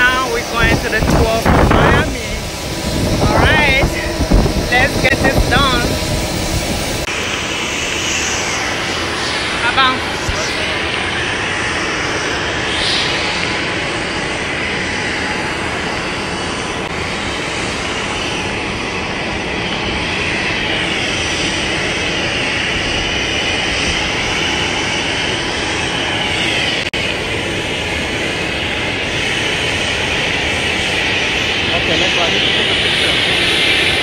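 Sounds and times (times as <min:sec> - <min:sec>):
jet engines roaring: 0:00.0 - 0:34.0.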